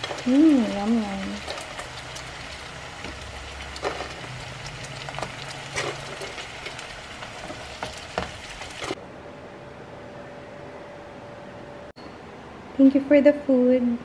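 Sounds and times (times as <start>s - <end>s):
frying sizzle with pops: 0.0s - 9.0s
shell pieces knocking in pan: 3.0s - 9.0s.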